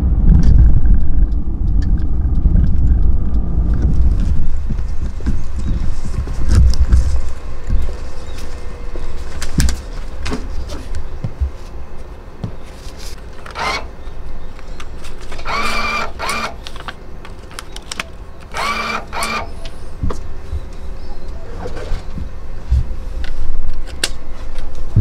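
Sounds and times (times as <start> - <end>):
banknote acceptor whirring: 15.4 - 16.7, 18.5 - 19.6.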